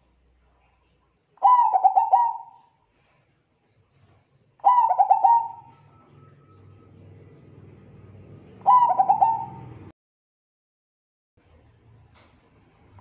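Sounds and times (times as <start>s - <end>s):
dove cooing: 1.4s - 2.8s, 4.6s - 9.9s.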